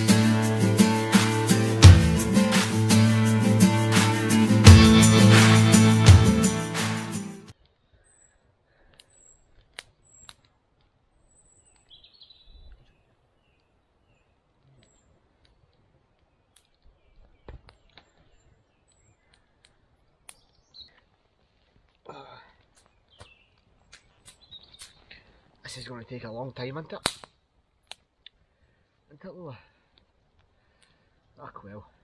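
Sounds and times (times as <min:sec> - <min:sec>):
wood fire snapping: 0:27.0 - 0:28.4.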